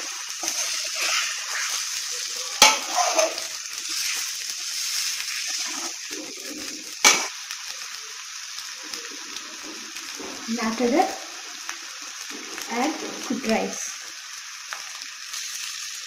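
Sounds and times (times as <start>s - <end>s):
spatula stirring in pan: 0.0s - 7.4s
eggs sizzling in a pan: 0.0s - 16.0s.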